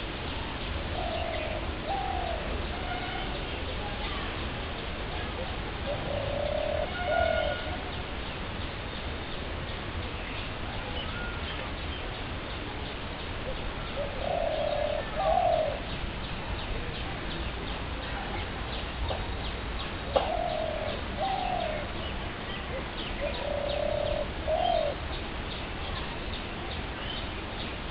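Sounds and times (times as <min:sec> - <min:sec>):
bird cooing: 0:00.9 - 0:02.6, 0:05.4 - 0:07.8, 0:13.4 - 0:16.0, 0:20.1 - 0:22.1, 0:22.7 - 0:25.0.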